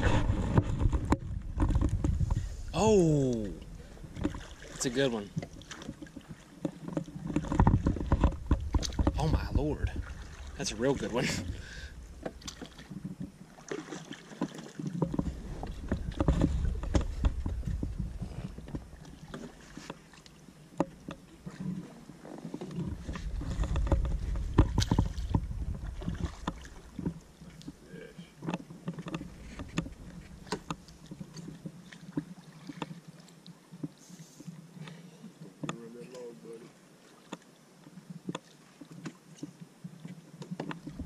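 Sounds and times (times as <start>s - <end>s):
low rumble: 0.0s - 4.5s, 7.8s - 12.8s
knocks and clicks of raft gear: 0.0s - 10.2s, 11.2s - 13.5s, 14.3s - 27.8s, 28.4s - 33.0s, 35.6s - 36.2s, 38.2s - 41.0s
water splashing: 0.0s - 41.0s.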